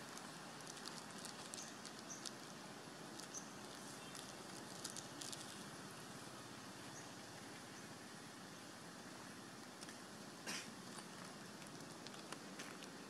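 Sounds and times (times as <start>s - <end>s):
steady low hiss: 0.0s - 13.0s
faint ticks and clicks: 10.8s - 13.0s.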